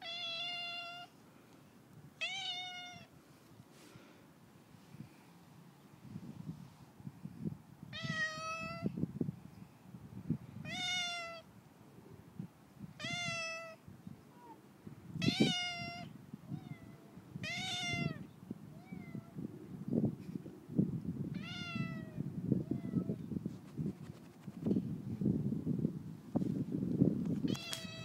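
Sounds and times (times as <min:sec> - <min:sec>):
cat meowing: 0:00.0 - 0:01.1, 0:02.2 - 0:03.1, 0:08.0 - 0:08.9, 0:10.6 - 0:11.4, 0:13.0 - 0:13.8, 0:15.2 - 0:19.4, 0:21.4 - 0:23.1.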